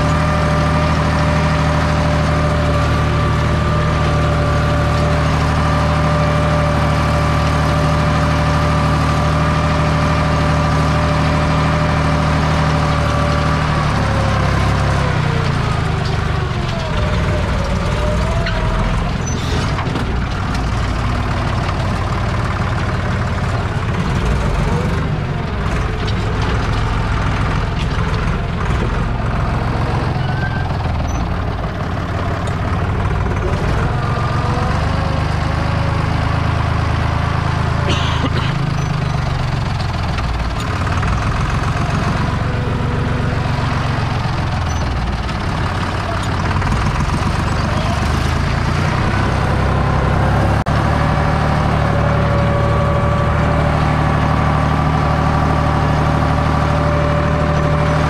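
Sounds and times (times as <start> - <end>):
tractor diesel engine running: 0.0 - 58.0
cab squeaks and rattles: 16.8 - 20.2, 30.0 - 31.4.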